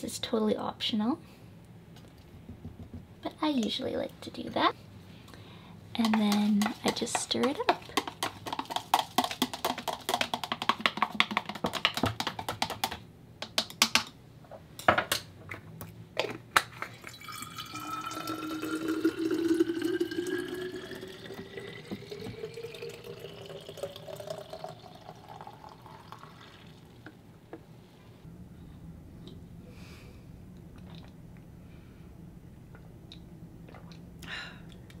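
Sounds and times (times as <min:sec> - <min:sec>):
utensil clinking and scraping in jug: 0:06.0 - 0:10.4, 0:16.8 - 0:25.5
utensil tapping jug: 0:06.0 - 0:14.1, 0:17.0 - 0:26.4
juice pouring into glass bottle: 0:16.9 - 0:27.0.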